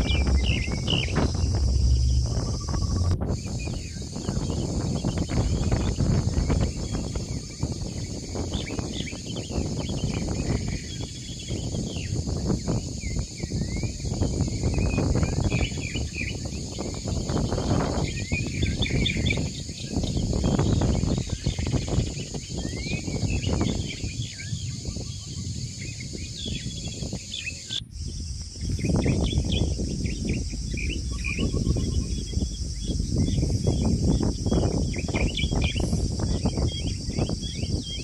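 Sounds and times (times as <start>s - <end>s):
high chirring: 0.0s - 4.4s, 28.9s - 36.7s
low rumble: 0.0s - 6.0s, 28.1s - 36.3s
bird-like chirps: 0.0s - 11.6s, 28.6s - 38.0s.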